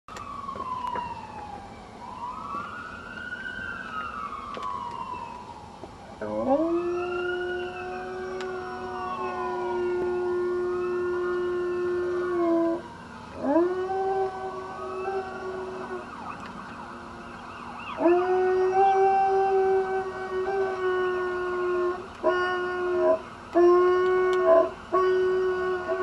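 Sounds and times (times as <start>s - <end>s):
wailing siren: 0.1s - 26.0s
dog howling: 6.2s - 16.4s, 17.9s - 26.0s.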